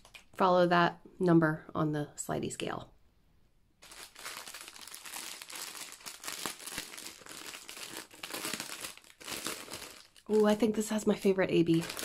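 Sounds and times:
plastic packaging crinkling: 0.0s - 0.4s, 3.8s - 12.0s.

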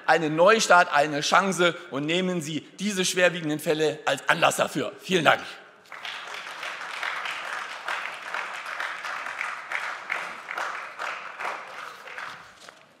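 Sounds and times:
many people clapping: 5.8s - 13.0s.

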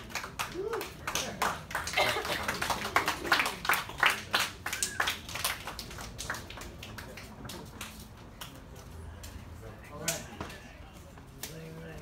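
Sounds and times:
people clapping: 0.0s - 9.4s.

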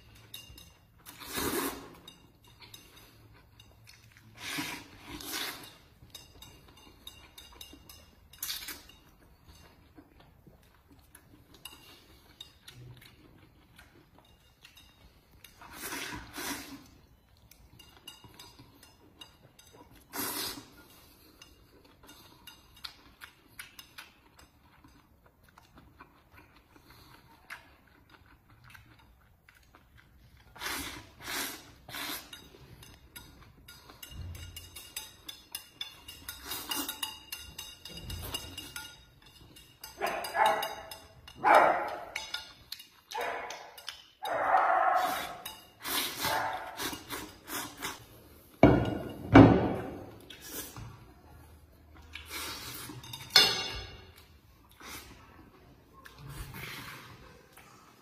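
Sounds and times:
eating noise: 1.0s - 6.0s, 19.9s - 38.8s, 39.4s - 48.5s.

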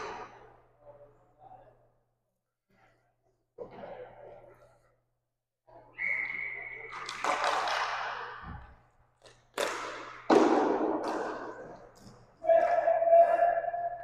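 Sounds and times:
hockey sticks and puck clacking: 6.8s - 8.4s, 9.2s - 14.0s
player shouting: 12.4s - 14.0s.

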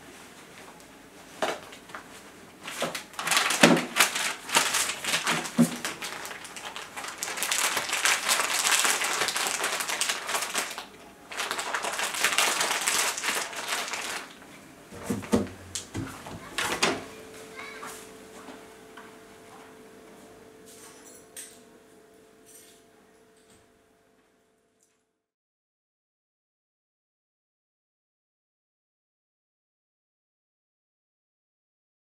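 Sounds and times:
rustling and crinkling: 0.0s - 18.6s.

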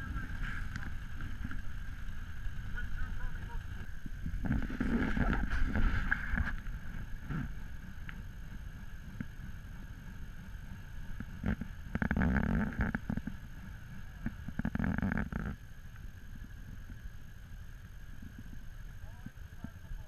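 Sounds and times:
wind buffeting microphone: 0.0s - 15.6s
atv engines running: 0.0s - 20.0s.

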